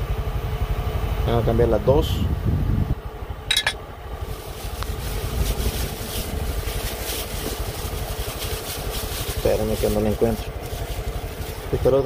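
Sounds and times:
engine idling: 0.0 - 12.0
plastic bag rustling: 4.2 - 12.0.

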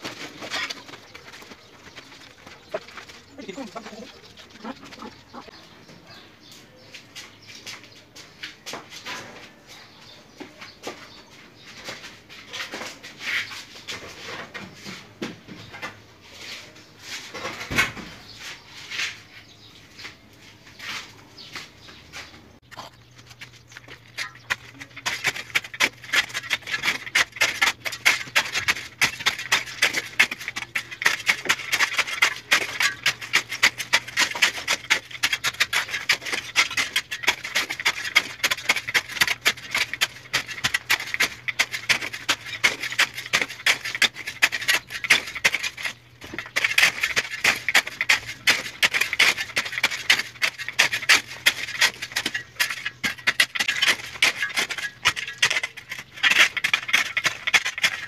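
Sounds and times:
shovel scraping dirt and gravel: 0.0 - 5.6, 22.7 - 58.0.

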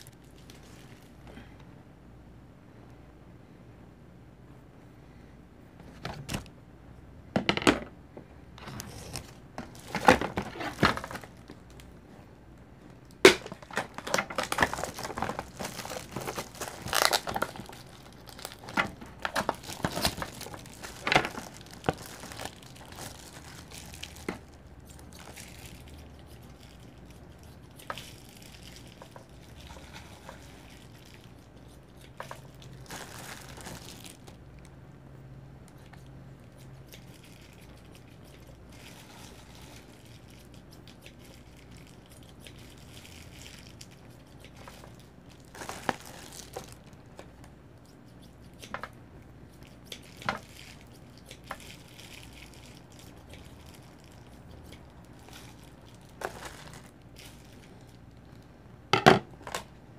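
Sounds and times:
plastic packaging crinkling: 0.0 - 1.4, 8.6 - 12.0, 13.0 - 34.7, 35.8 - 47.5, 49.8 - 58.4.

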